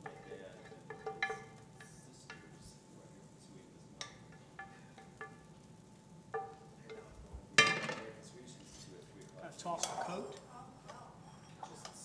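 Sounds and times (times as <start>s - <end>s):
metal utensil clinking on ceramic bowl: 0.0s - 2.0s.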